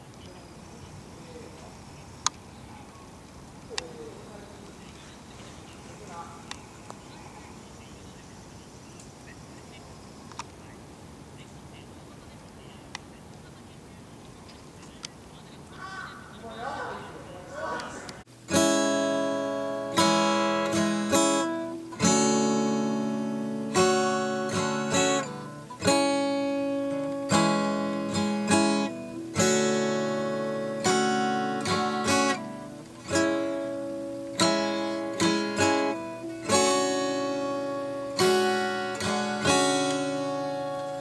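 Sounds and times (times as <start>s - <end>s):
strummed acoustic guitar: 18.3s - 41.0s.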